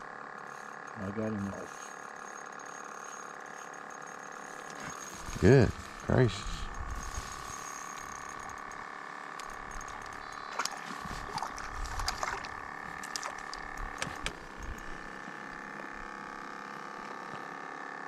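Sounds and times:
fish splashing at water surface: 10.5 - 13.7.

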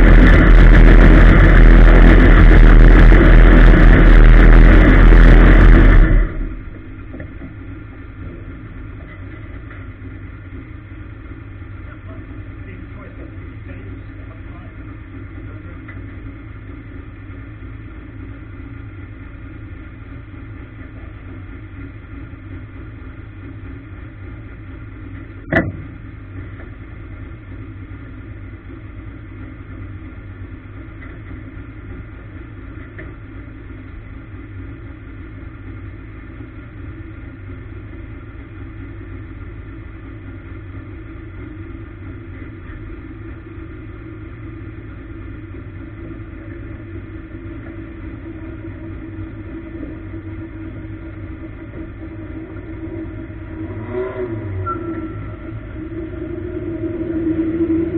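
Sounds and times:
race car engine running: 0.0 - 57.9.

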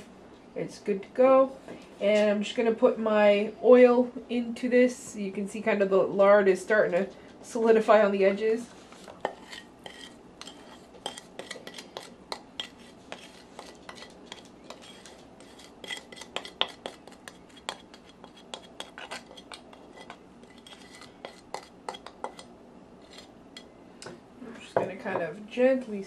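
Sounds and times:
spoon scraping bowl: 8.9 - 23.7.

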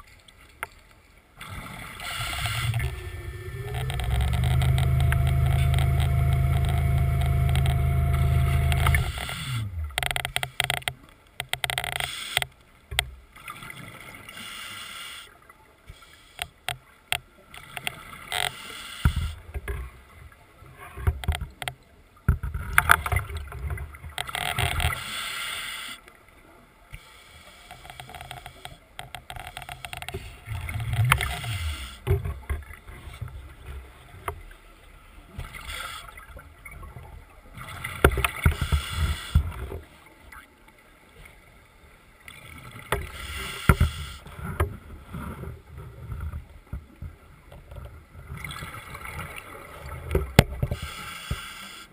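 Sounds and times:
electric motor humming: 2.0 - 10.0
clicks: 2.2 - 13.1.

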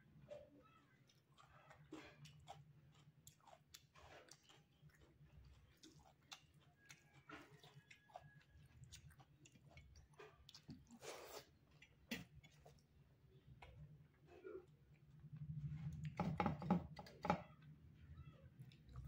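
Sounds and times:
close-up chewing: 0.1 - 16.3, 18.5 - 19.0
fingers mixing food wet clicks: 0.2 - 11.0.

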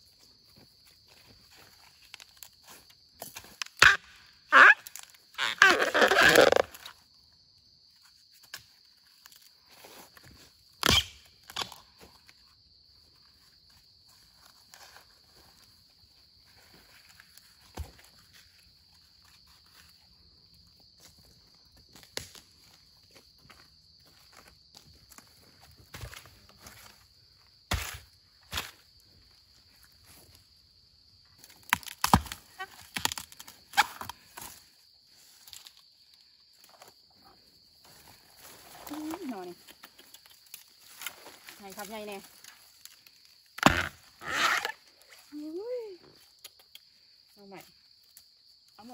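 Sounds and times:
high insect drone: 0.0 - 48.9
bamboo shoot snapping: 10.8 - 11.8, 22.0 - 22.4, 31.4 - 34.6, 35.4 - 35.8, 39.6 - 41.3
leaves rustling: 37.8 - 43.5.

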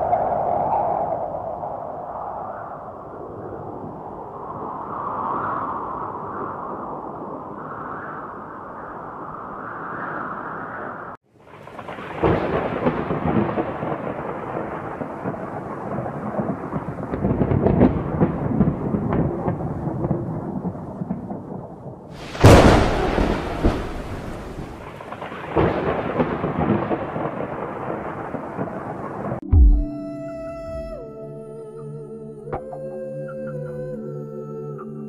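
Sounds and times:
rolling thunder: 11.6 - 29.9
loud thunderclap: 11.7 - 29.9
rain hissing: 22.2 - 25.4.

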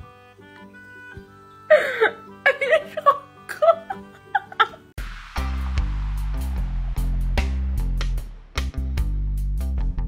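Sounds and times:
music with bass and drums: 5.0 - 10.0.

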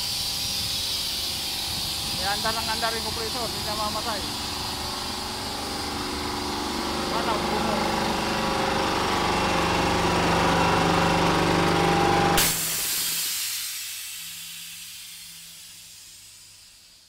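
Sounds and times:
air hissing out: 0.0 - 8.4, 12.2 - 17.0
air compressor running: 0.0 - 17.0.

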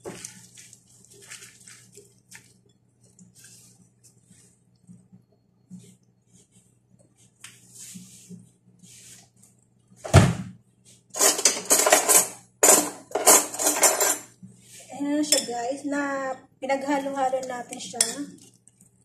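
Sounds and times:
heavy thump on counter: 10.1 - 10.6
clattering and rustling: 11.2 - 14.3.

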